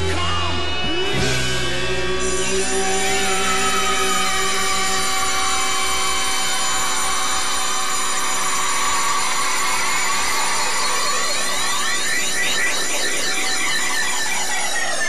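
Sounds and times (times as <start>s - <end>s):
distorted rock guitar chord: 0.0s - 8.9s.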